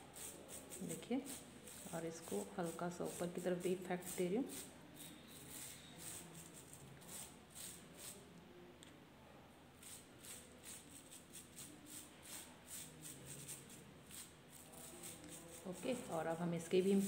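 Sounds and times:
paintbrush dabbing on bubble wrap: 0.0 - 8.3, 9.8 - 17.0.

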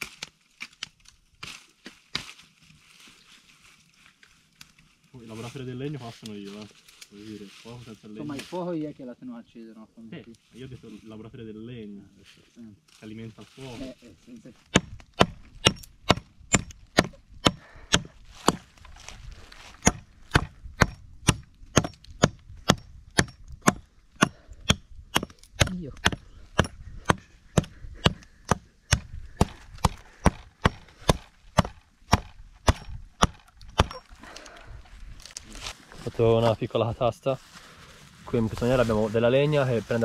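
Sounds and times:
firewood being chopped: 0.0 - 2.4, 14.6 - 34.5.

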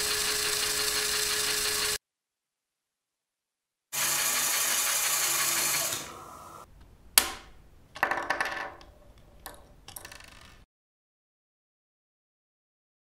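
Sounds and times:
toy motor whirring: 0.0 - 2.0, 4.0 - 6.1
plastic snap: 7.2 - 7.6.

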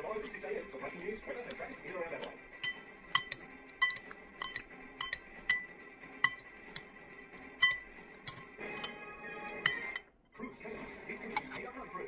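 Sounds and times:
metal spoon clinking on ceramic bowl: 2.2 - 10.1.

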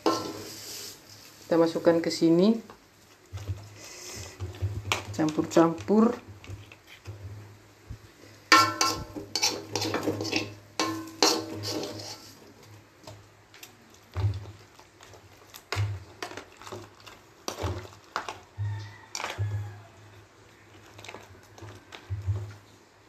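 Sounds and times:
paste scraped and stirred: 8.8 - 10.6, 11.2 - 19.8.

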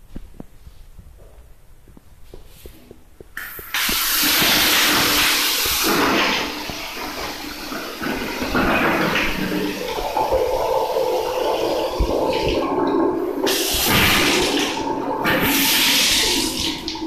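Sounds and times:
water gushing from bath spout: 3.4 - 17.0.

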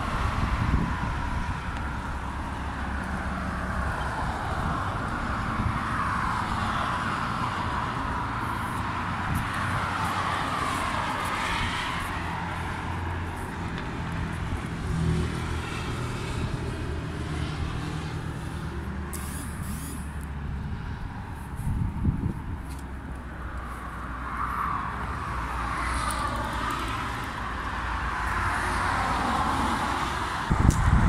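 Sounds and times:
wind on microphone: 0.0 - 18.1, 20.6 - 22.7, 29.1 - 31.0
road traffic passing: 0.0 - 31.0.

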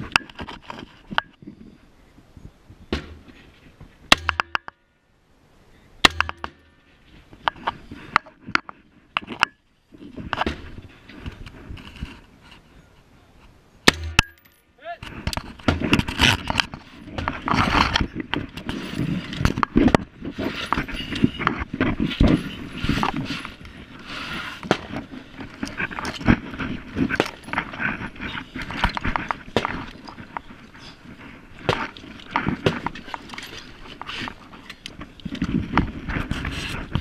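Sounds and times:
gear and clothing rustling: 14.4 - 37.0.

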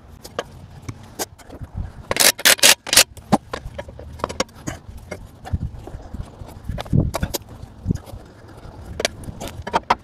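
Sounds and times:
metallic clicks and clanks: 0.2 - 5.7.

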